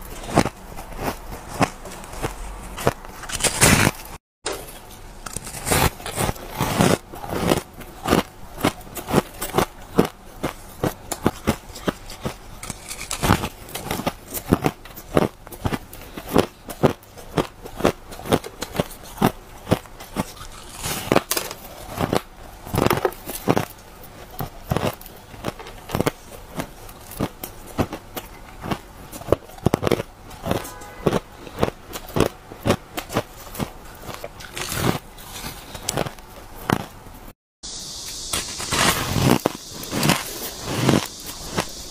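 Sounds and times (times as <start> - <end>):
person crunching ice: 0.0 - 37.0, 38.4 - 41.9.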